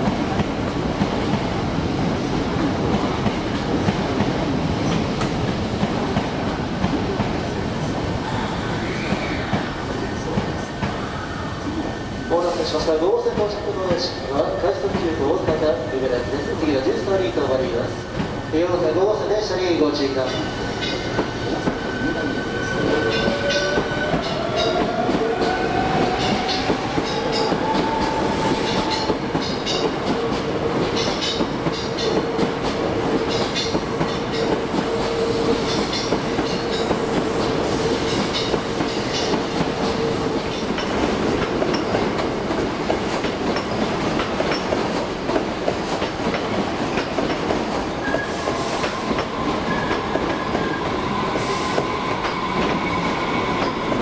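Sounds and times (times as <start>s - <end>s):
train wheels clicking over rail joints: 35.6s - 50.7s.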